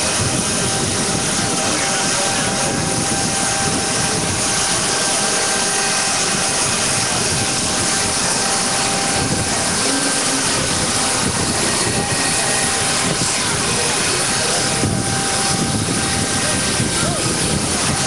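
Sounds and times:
aircraft turbine rush and whine: 0.0 - 18.0.

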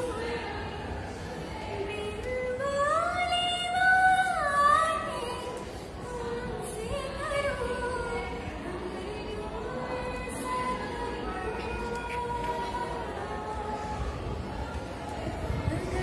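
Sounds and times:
woman singing unaccompanied: 1.6 - 14.3.

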